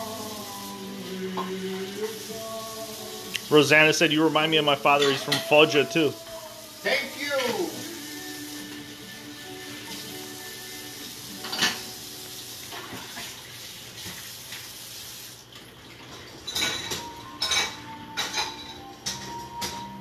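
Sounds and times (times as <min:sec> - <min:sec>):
dishes clinking: 0:04.9 - 0:05.8, 0:11.4 - 0:12.0, 0:16.1 - 0:20.0
plates clattering into dishwasher rack: 0:11.4 - 0:12.0, 0:16.4 - 0:20.0.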